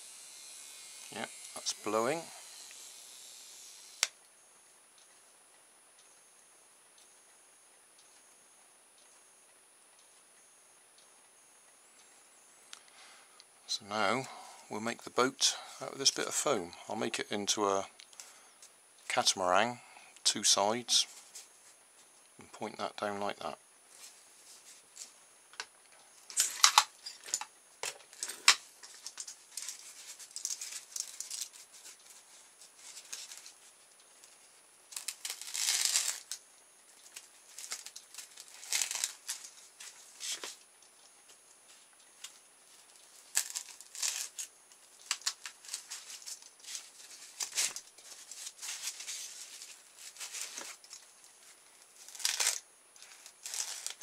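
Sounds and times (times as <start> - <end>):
foam packaging scratching: 29.5 - 33.7, 34.9 - 36.4, 37.5 - 40.6, 43.1 - 51.1, 52.0 - 54.0.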